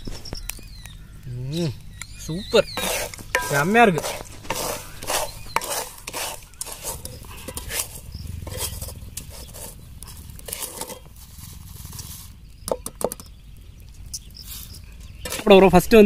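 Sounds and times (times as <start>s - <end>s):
sand sifting through mesh: 2.5s - 12.6s, 14.4s - 15.8s
skimmer scraping sand in wok: 2.6s - 12.6s, 14.2s - 15.7s.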